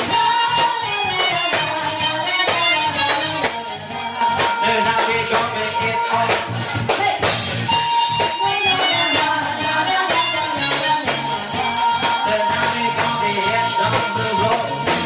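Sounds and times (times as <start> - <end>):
keyboard: 0.0 - 15.0
live band playing dance music: 0.0 - 15.0.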